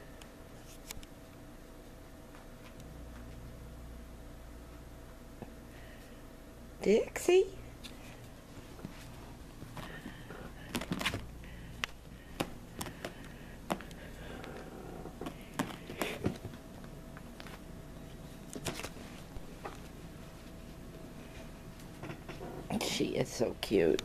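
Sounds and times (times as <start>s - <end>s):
faint steady hum: 0.0s - 24.0s
taps and rustles of handling: 7.8s - 17.7s.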